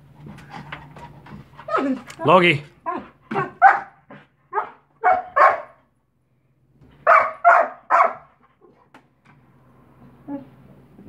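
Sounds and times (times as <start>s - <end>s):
dog barking loudly: 2.8s - 5.9s, 7.0s - 8.4s.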